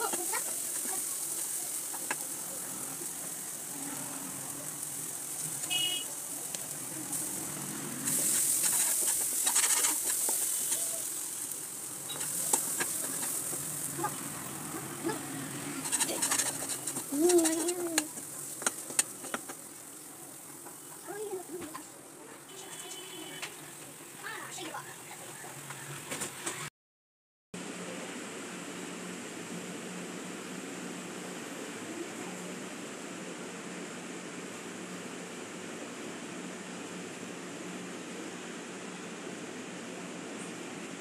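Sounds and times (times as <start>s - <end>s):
food sizzling in pan: 0.0s - 26.0s
spatula scraping pan: 7.9s - 11.5s, 12.1s - 19.7s.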